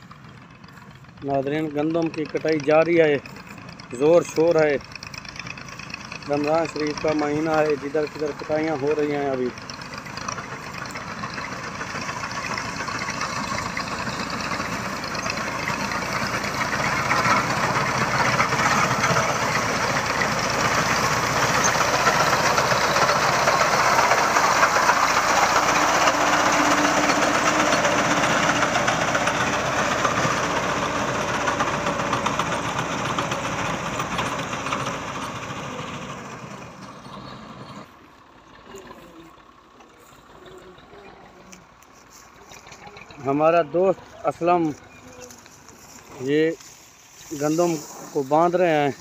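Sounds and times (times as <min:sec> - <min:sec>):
diesel tractor running: 0:00.0 - 0:49.0.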